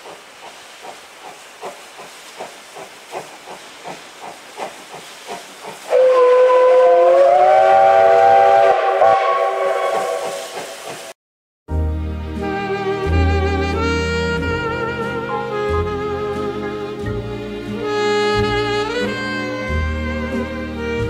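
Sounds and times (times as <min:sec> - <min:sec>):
steam locomotive chuffing: 0:00.0 - 0:11.1
steam whistle chord: 0:05.9 - 0:10.6, 0:11.8 - 0:21.0.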